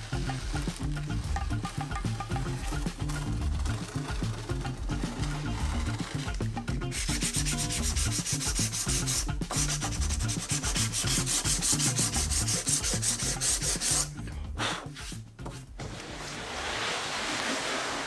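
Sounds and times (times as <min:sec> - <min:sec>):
sanding sponge scraping wood: 0:03.7 - 0:14.2, 0:15.8 - 0:18.0.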